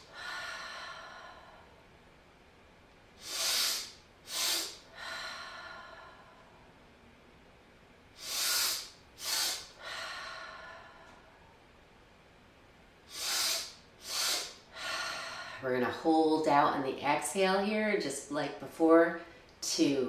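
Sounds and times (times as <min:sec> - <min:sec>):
long slow exhale: 0:00.0 - 0:01.8, 0:03.2 - 0:06.7, 0:08.2 - 0:11.6, 0:13.1 - 0:15.6
person inhaling sharply: 0:03.2 - 0:06.3, 0:08.2 - 0:11.2, 0:13.1 - 0:15.6.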